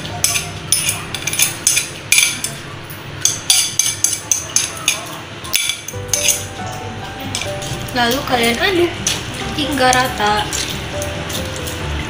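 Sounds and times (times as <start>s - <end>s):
metal tongs scraping frying pan: 3.2s - 6.6s.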